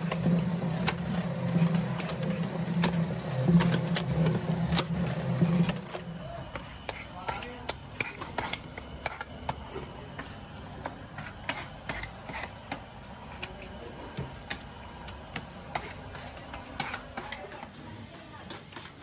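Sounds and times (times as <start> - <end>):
low workshop rumble: 0.0 - 19.0.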